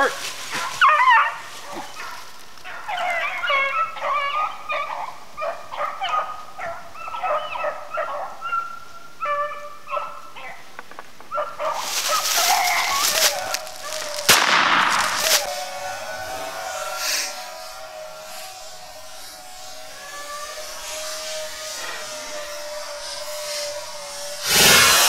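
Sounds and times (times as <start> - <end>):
dogs baying and yipping: 0.2 - 25.0
broad rushing noise: 11.8 - 25.0.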